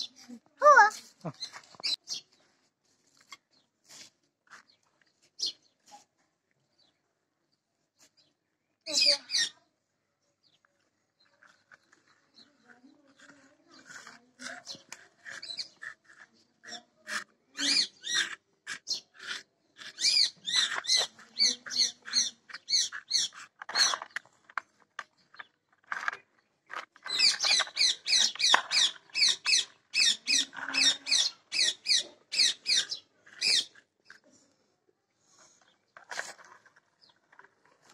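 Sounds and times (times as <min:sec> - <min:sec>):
animal chirping high-pitched: 0:17.6 - 0:23.9, 0:27.1 - 0:33.8.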